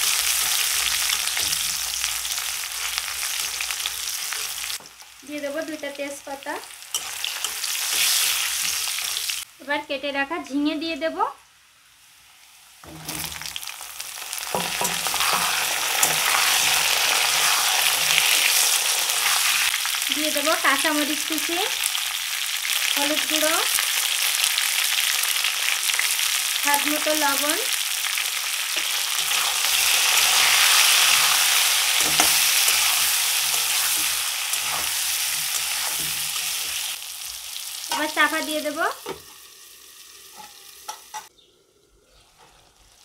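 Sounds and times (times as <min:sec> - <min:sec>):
oil sizzling: 0:00.0 - 0:43.0
metal spatula scraping pan: 0:00.1 - 0:04.8, 0:06.9 - 0:09.3, 0:12.8 - 0:13.6, 0:14.5 - 0:19.6, 0:28.8 - 0:36.9.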